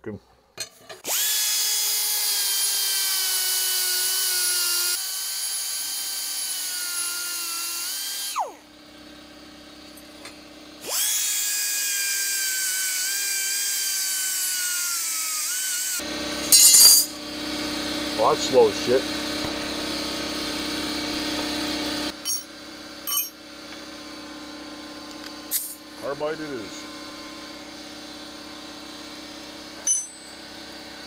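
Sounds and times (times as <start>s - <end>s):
die grinder whining: 0.9s - 22.2s.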